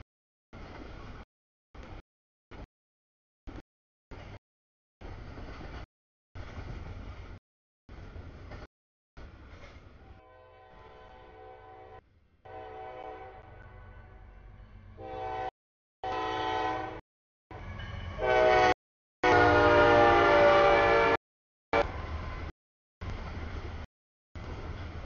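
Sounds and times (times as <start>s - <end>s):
locomotive air horn blasts: 10.0s - 14.2s, 15.0s - 17.0s, 18.1s - 21.9s.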